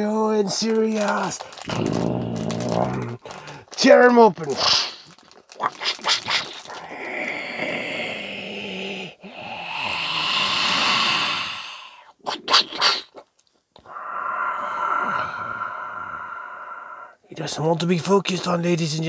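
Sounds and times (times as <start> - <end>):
plastic bag crinkling: 0.0 - 7.1
breathy hiss with growl: 6.5 - 12.2, 13.9 - 17.2.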